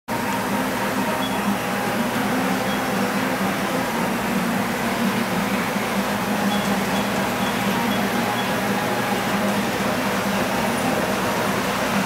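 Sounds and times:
model train hum: 0.1s - 12.0s.

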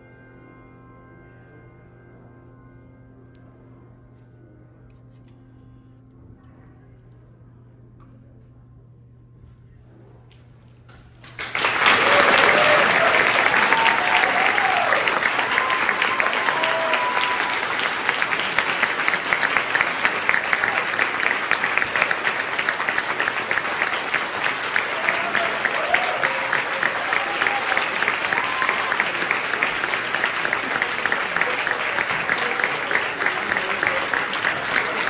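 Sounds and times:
audience applauding: 11.2s - 35.0s.

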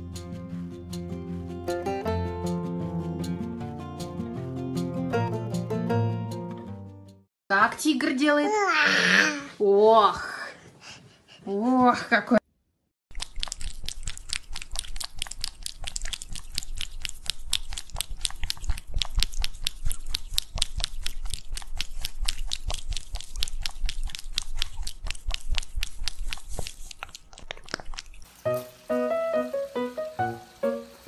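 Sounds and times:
cat licking wetly: 13.1s - 28.3s.

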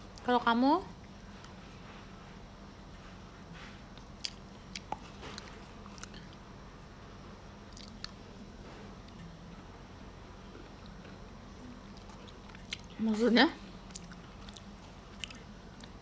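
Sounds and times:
low steady hum: 0.0s - 16.0s
crunching while eating: 3.6s - 6.5s, 7.6s - 9.3s, 10.6s - 13.0s, 13.6s - 16.0s.

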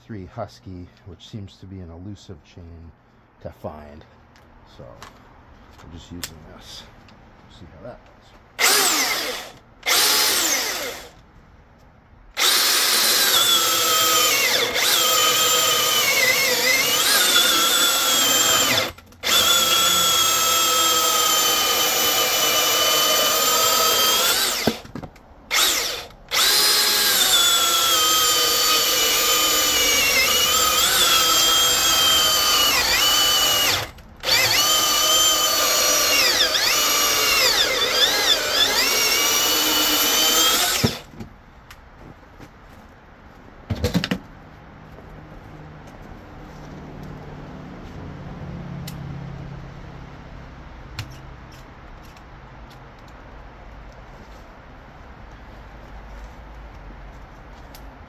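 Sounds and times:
electric chainsaw cutting wood: 8.6s - 11.2s, 12.4s - 24.8s, 25.5s - 41.1s.

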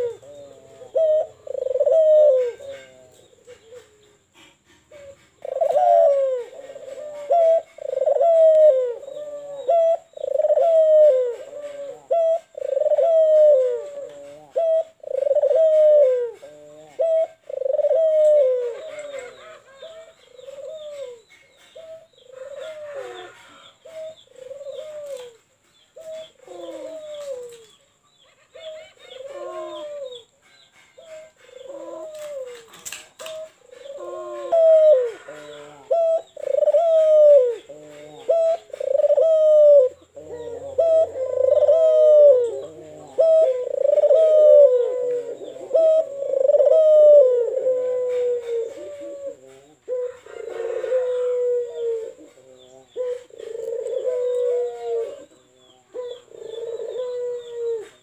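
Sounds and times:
dove cooing: 0.0s - 58.0s.

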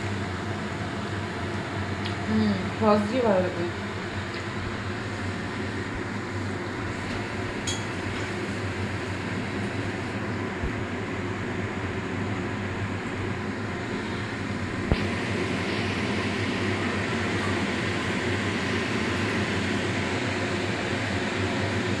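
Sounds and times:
machine hum with hiss: 0.0s - 22.0s.

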